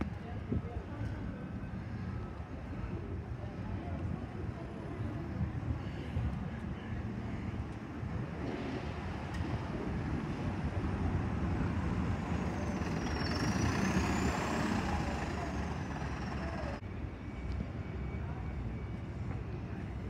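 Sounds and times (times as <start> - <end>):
traffic noise: 0.0 - 20.0
bus driving past: 7.0 - 20.0.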